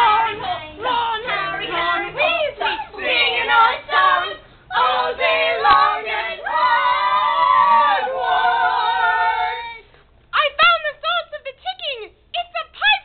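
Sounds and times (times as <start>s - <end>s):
group singing a cappella: 0.0s - 9.9s.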